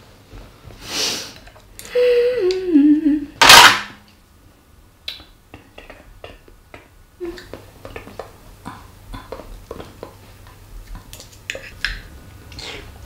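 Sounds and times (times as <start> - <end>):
person humming: 1.9 - 3.4, 7.2 - 7.5.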